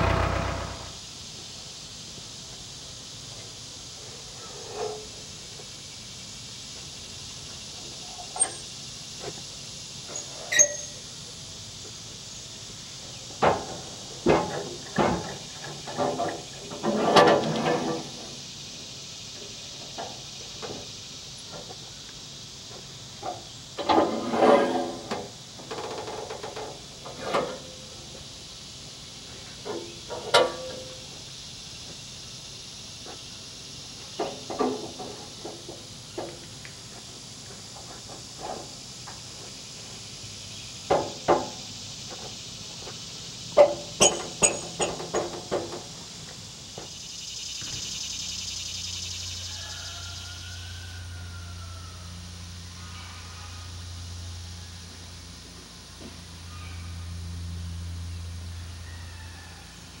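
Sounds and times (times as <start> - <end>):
heavy wooden knocks: 0.0 - 1.0
steady high hiss: 0.0 - 16.9, 17.9 - 24.0, 24.8 - 58.9.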